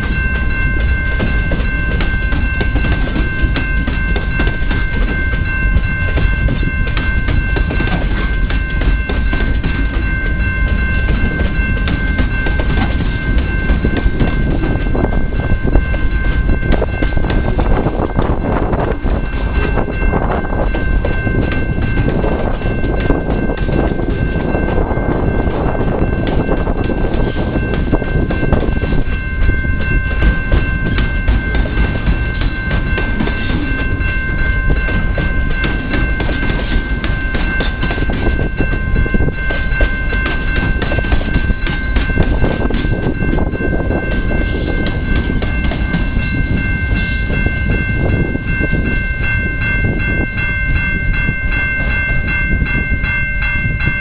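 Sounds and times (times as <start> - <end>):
freight train wheels clacking: 0.0 - 54.0
heavy train rumble: 0.0 - 54.0.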